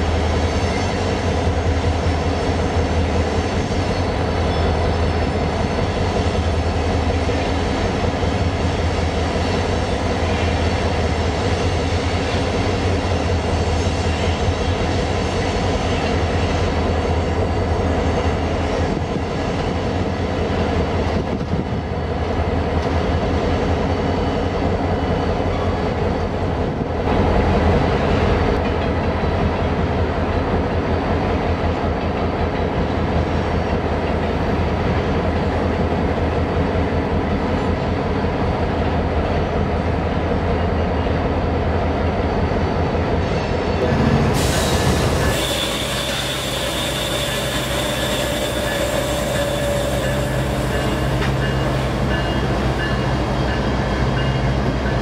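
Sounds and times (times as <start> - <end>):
diesel locomotive engine humming: 0.0 - 55.0
freight train wheels rumbling: 0.0 - 55.0
wheels squealing: 44.9 - 52.5.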